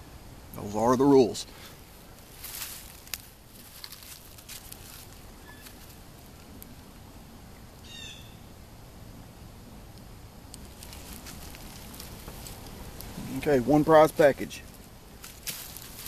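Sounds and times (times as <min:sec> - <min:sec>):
bird call: 0:05.4 - 0:05.8, 0:07.8 - 0:08.5.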